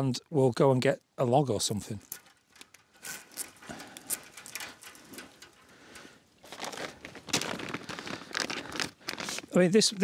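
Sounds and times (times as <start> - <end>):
plastic packet handled: 2.0 - 5.7, 6.4 - 10.0
hands rustling at wire fence: 2.0 - 9.5.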